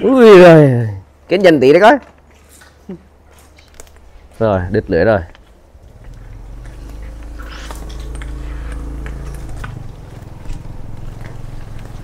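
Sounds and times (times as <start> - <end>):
net clicking and rustling: 2.2 - 4.2
low motor hum: 5.5 - 12.0.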